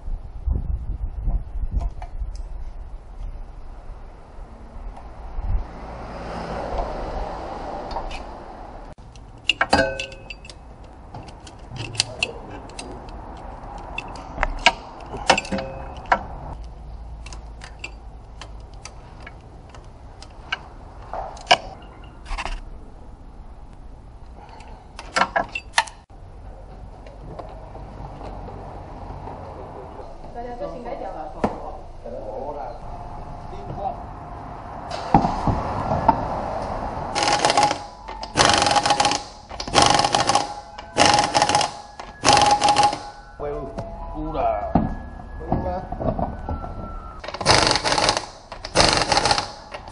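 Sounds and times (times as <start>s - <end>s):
impact wrench rattling: 9.0s - 20.6s, 37.1s - 43.2s, 47.2s - 49.9s
air motor whine: 36.6s - 43.9s
ratchet wrench clicking: 37.2s - 43.1s, 47.2s - 49.9s.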